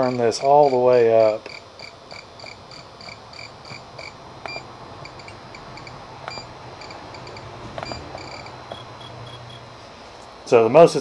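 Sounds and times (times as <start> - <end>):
short high electronic beeps: 3.7 - 9.6.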